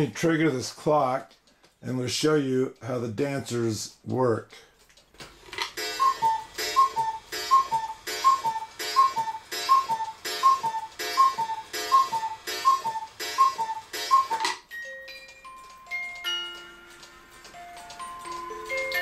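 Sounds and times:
cuckoo clock calling: 0:05.6 - 0:19.0
music box plucking notes: 0:05.8 - 0:19.0.

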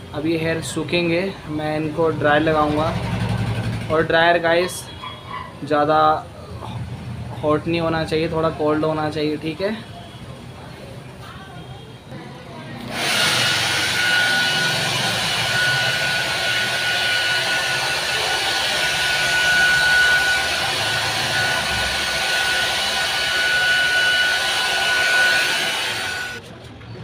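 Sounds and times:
hair dryer running: 0:12.8 - 0:26.4.

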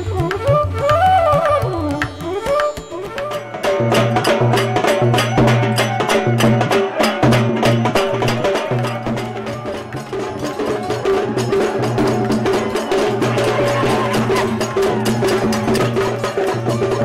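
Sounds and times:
dhol drum beat: 0:00.0 - 0:17.0
gliding folk melody: 0:00.0 - 0:17.0
hand cymbals clashing: 0:02.1 - 0:17.0.

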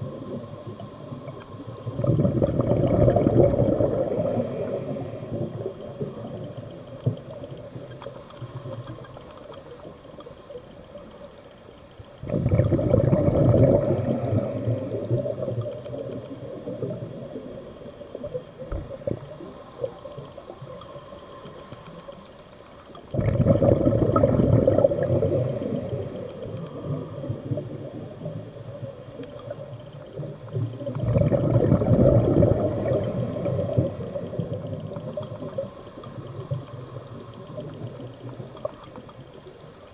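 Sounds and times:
scuba regulator exhaled bubbles: 0:00.0 - 0:06.5, 0:12.2 - 0:17.6, 0:23.1 - 0:28.8, 0:30.2 - 0:38.8
diver breathing through regulator: 0:03.2 - 0:05.6, 0:13.3 - 0:15.5, 0:24.5 - 0:27.0, 0:32.2 - 0:34.5.

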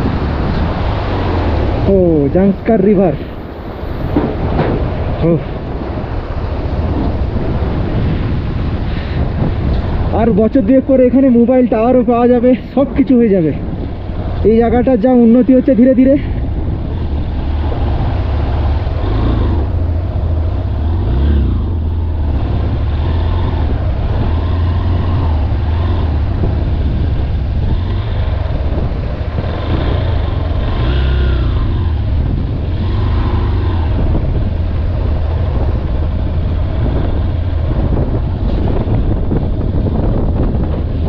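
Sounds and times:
wind on microphone: 0:00.0 - 0:41.0
motorcycle engine running: 0:13.6 - 0:41.0.

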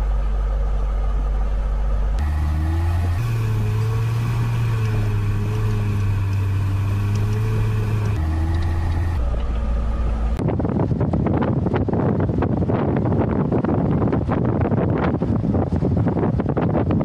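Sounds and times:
car engine drone from inside cabin: 0:00.0 - 0:12.7
wind buffeting microphone: 0:03.3 - 0:17.0.

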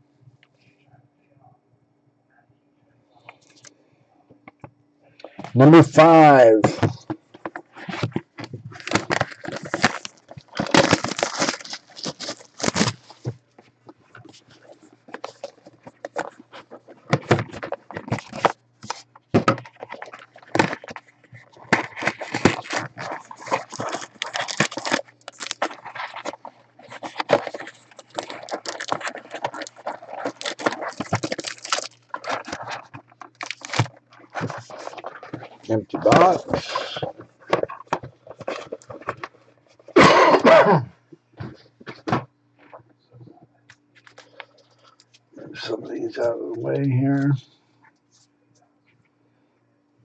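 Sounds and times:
faint low hum: 0:00.0 - 0:50.0
cards and foil crinkling: 0:05.2 - 0:40.2, 0:44.0 - 0:47.3.

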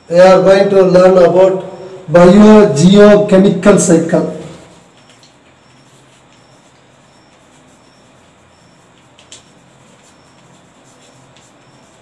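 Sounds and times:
faint steady hum: 0:00.0 - 0:12.0
chalk scratching on blackboard: 0:04.6 - 0:12.0
chalk tapping on blackboard: 0:04.9 - 0:12.0.

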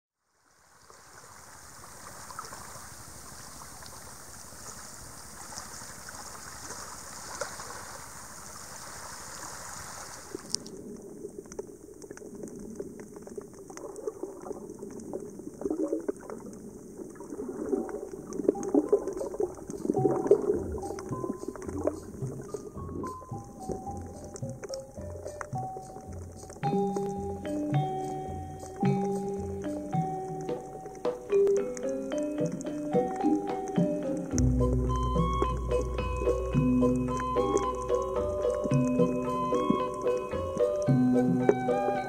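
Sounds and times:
seawater lapping: 0:00.8 - 0:42.0
underwater sloshing: 0:00.9 - 0:42.0
crackle of small clicks: 0:10.3 - 0:34.5.

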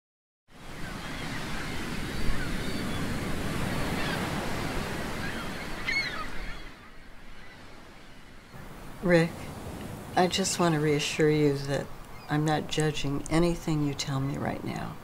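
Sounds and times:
ocean surf washing in: 0:00.5 - 0:15.0
bird calls: 0:00.7 - 0:08.7, 0:11.5 - 0:12.9.

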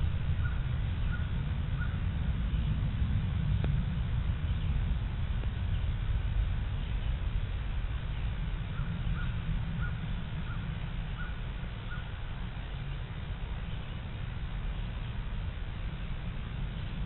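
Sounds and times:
steady low rumble: 0:00.0 - 0:17.0
bird calling: 0:00.3 - 0:02.0, 0:08.7 - 0:12.2.

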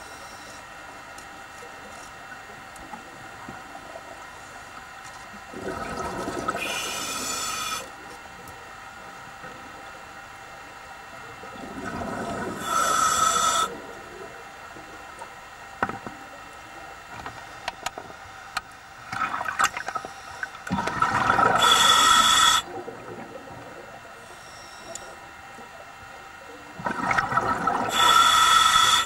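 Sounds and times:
small clicks and ticks: 0:00.4 - 0:03.6
regulator bubbling and hissing: 0:01.8 - 0:29.0.

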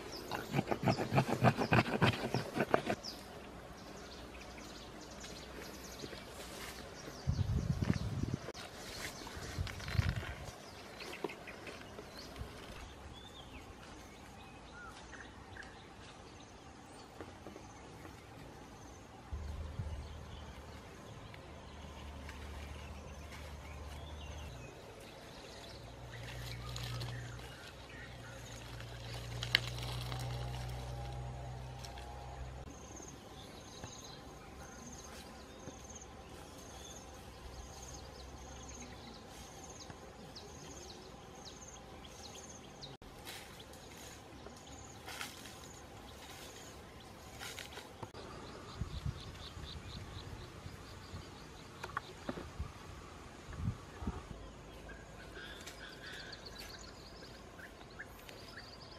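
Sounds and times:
low rumble: 0:19.3 - 0:23.8.

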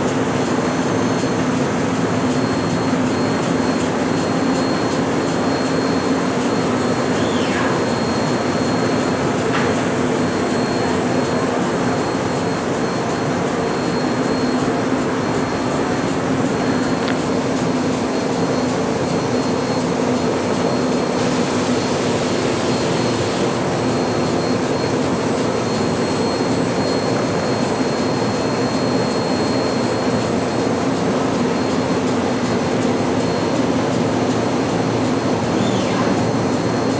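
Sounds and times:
printing press running: 0:00.0 - 0:36.9.

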